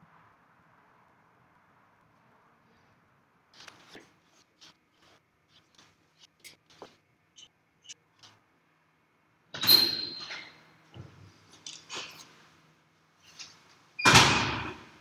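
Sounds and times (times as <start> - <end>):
high metallic ring: 9.6 - 10.5.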